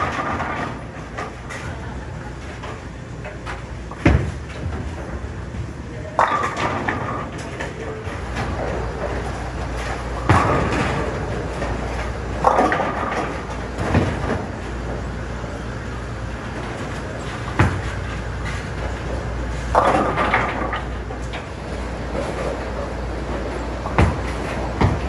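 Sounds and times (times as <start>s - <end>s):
bowling pins crashing: 0.0s - 1.6s, 6.1s - 15.0s, 16.5s - 25.0s
bowling balls rolling: 0.0s - 25.0s.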